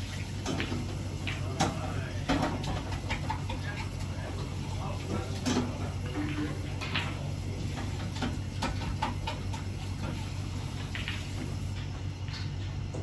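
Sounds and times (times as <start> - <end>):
steady low hum: 0.0 - 13.0
snooker balls clicking: 0.5 - 4.0, 10.8 - 12.7.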